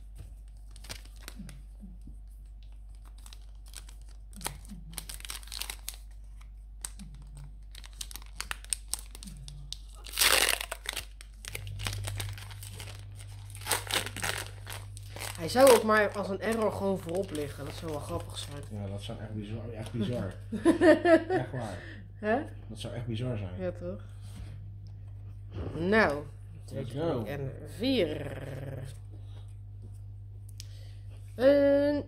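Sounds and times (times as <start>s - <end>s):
foil wrapper crinkling and tearing: 0.4s - 1.7s, 2.5s - 18.7s.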